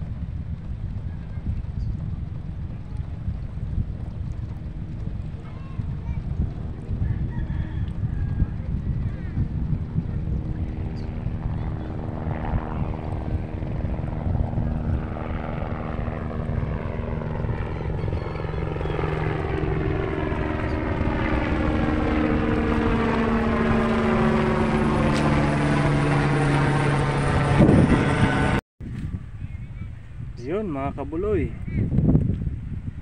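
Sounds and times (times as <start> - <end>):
engine drone: 8.0 - 28.6.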